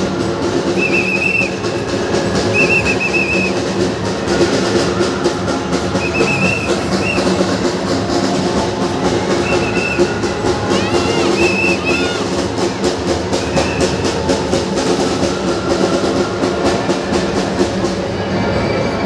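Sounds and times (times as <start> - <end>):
loud music: 0.0 - 18.9
high whistle-like chirps: 0.7 - 1.7, 2.4 - 3.7, 5.9 - 7.5, 9.4 - 10.2, 11.3 - 12.2.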